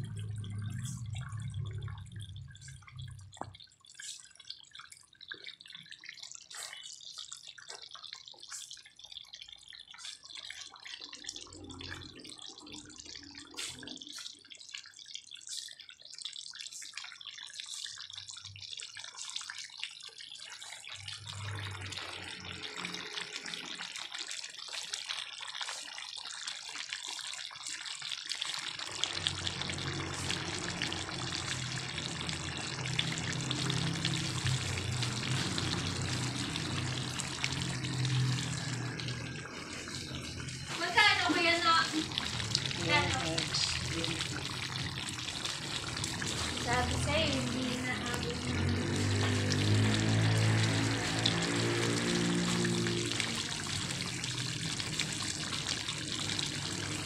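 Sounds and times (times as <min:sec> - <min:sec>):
low hum: 0:00.0 - 0:03.5
stew bubbling in a pan: 0:00.0 - 0:57.0.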